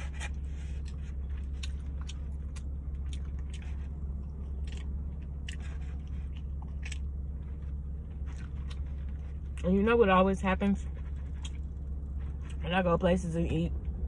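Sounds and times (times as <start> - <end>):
person chewing and biting meat: 0.0 - 9.6, 11.1 - 12.6
low hum: 0.0 - 14.0.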